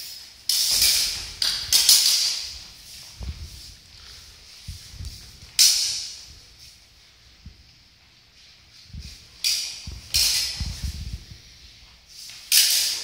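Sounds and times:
footsteps thudding on floor: 3.2 - 3.7.

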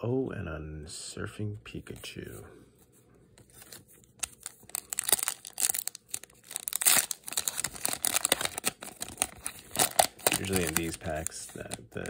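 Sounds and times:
foil wrapper crinkling and tearing: 3.6 - 12.0.

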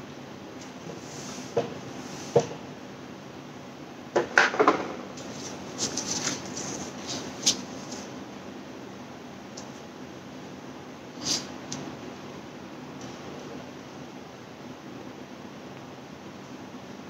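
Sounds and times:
rustling: 5.2 - 8.2.

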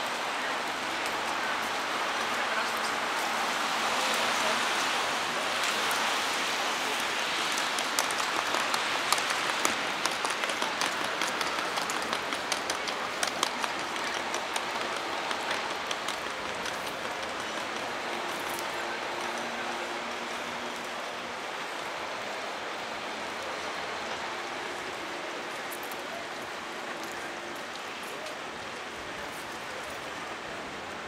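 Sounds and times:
heavy rain: 0.0 - 31.0
raindrops ticking nearby: 0.0 - 31.0.

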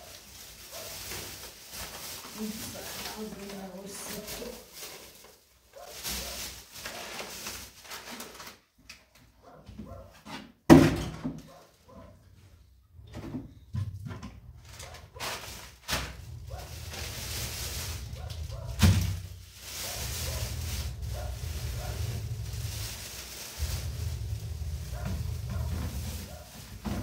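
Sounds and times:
plastic bags crinkling: 0.0 - 8.8, 14.5 - 27.0.

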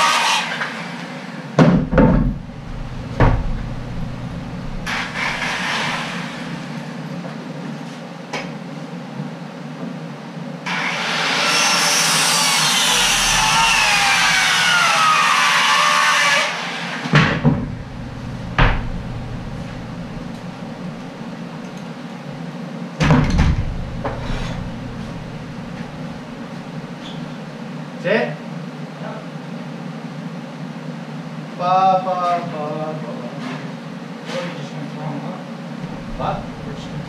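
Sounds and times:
power saw cutting wood: 0.0 - 0.8, 2.4 - 6.8, 10.7 - 21.8, 23.8 - 27.2
sharp wooden knocks: 1.6 - 5.8, 17.2 - 21.2.

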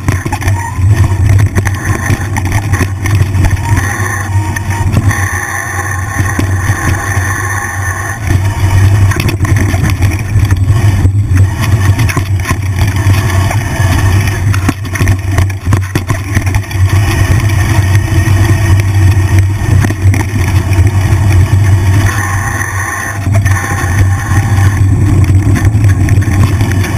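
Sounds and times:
bike rattling and knocking: 0.0 - 5.3, 8.2 - 22.1, 23.2 - 26.9
wind rumbling on microphone: 0.0 - 26.9.

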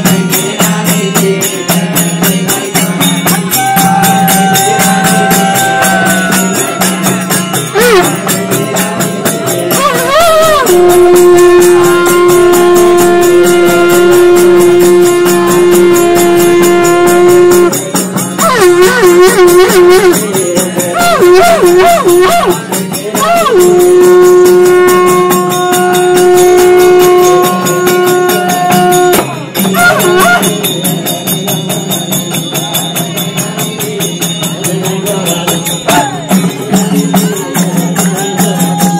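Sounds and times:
jingling frame drum: 0.0 - 38.9
small hand cymbals: 0.0 - 38.9
voices singing: 0.0 - 38.9.

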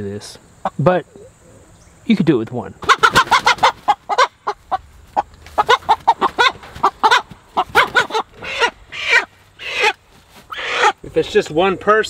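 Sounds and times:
hen clucking: 2.8 - 11.1.

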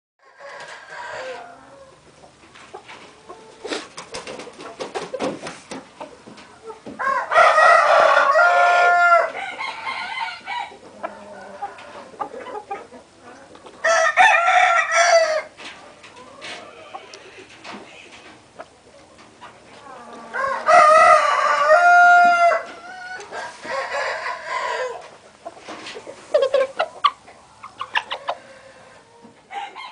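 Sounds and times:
rooster crowing: 0.2 - 1.9, 7.0 - 12.1, 13.8 - 15.5, 20.2 - 25.1, 28.2 - 29.9.

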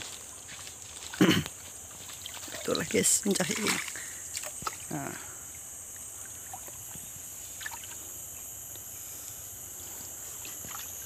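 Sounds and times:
muddy water sloshing: 0.0 - 8.0, 10.4 - 11.0
high-pitched hiss: 0.0 - 11.0
small splashes: 0.4 - 7.0, 7.6 - 8.0, 10.4 - 11.0.

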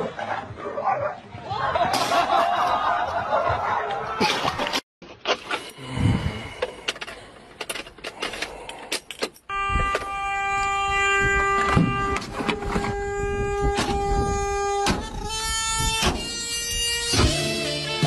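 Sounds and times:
handling clicks and rattles: 6.6 - 10.1
continuous car horn: 9.5 - 18.0.

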